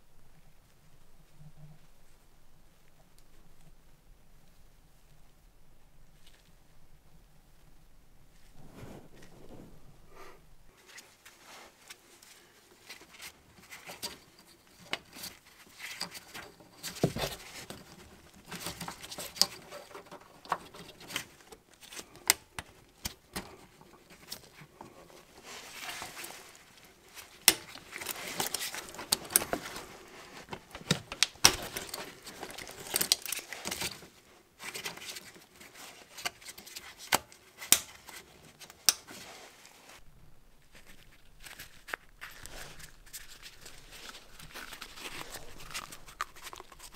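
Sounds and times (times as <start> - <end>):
rustling: 0.0 - 46.9.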